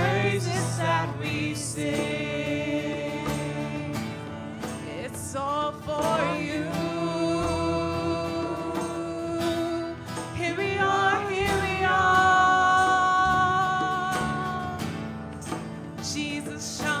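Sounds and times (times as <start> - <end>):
instrumental accompaniment: 0.0 - 17.0
person singing long notes: 2.8 - 14.9.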